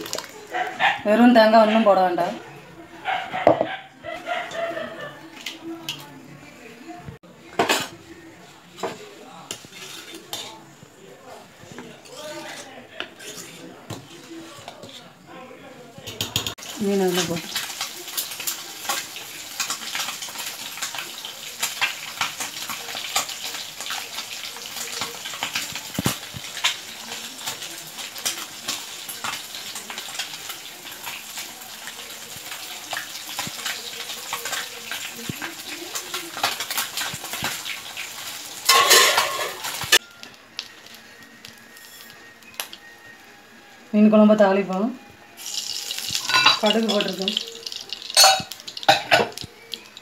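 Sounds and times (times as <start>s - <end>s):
gravy boiling in a pot: 0.0s - 0.5s, 16.5s - 43.9s, 45.2s - 50.0s.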